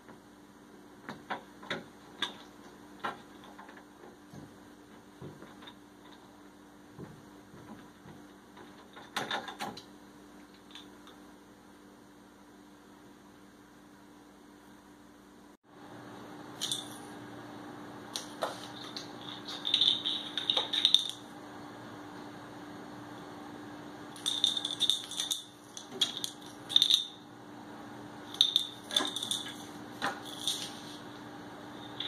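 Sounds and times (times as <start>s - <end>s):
steady low hum: 0.0s - 32.0s
bottle cap skittering on tile floor: 18.2s - 21.2s, 24.2s - 27.2s, 28.3s - 31.0s.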